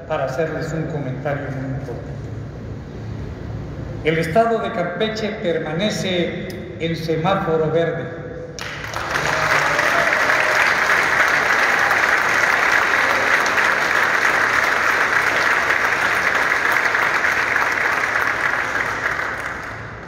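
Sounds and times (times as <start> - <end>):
audience applauding: 8.6 - 20.0.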